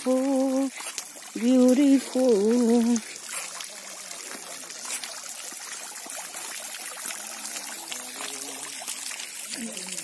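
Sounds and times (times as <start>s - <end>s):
fountain water splashing: 0.0s - 10.0s
faint voices: 7.0s - 10.0s.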